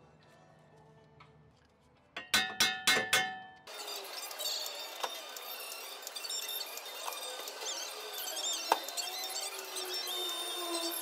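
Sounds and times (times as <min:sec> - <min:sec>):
metal-on-metal strikes: 0:02.2 - 0:03.7.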